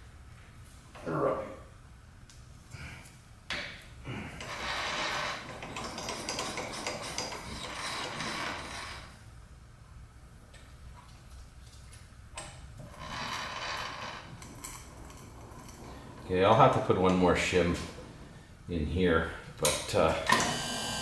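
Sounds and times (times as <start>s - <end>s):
metal-on-metal scraping: 4.4s - 9.1s.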